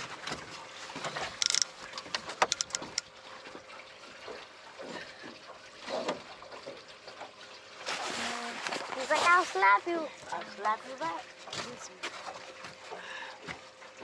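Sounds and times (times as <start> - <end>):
water lapping against boat: 0.0 - 14.0
sharp clicks: 1.4 - 3.1.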